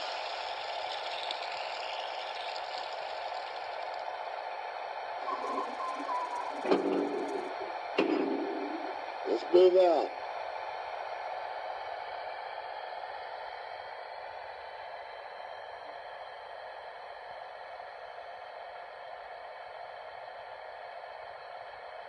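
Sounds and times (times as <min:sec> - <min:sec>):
water filling hiss from small speaker: 0:00.0 - 0:04.6.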